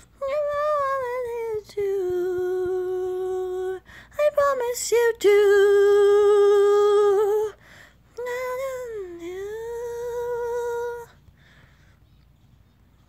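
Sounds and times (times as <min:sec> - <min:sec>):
person singing unaccompanied: 0:00.0 - 0:11.3.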